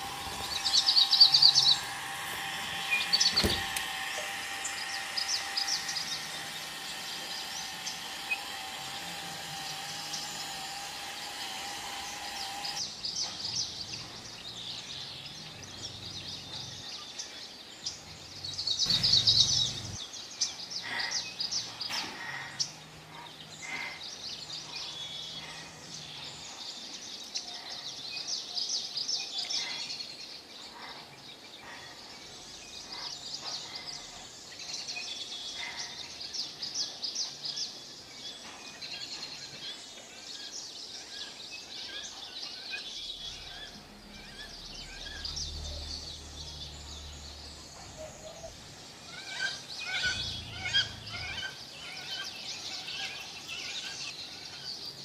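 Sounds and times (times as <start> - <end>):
birds chirping and twittering: 0.0 - 55.0.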